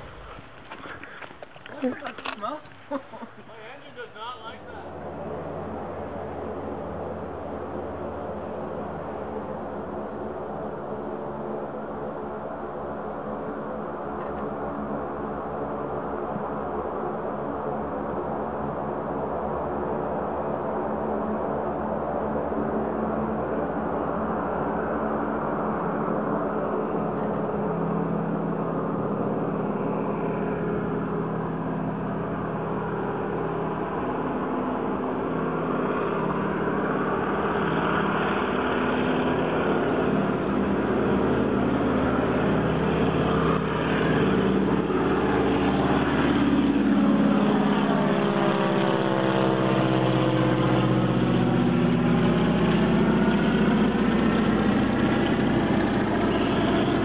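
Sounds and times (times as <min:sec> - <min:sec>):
plane piston engine droning: 0:00.0 - 0:11.0, 0:23.8 - 0:57.0.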